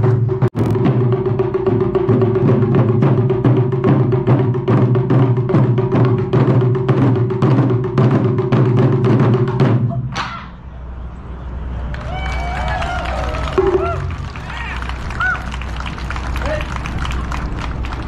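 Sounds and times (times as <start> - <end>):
taiko drums ensemble: 0.0 - 10.4, 13.5 - 14.7.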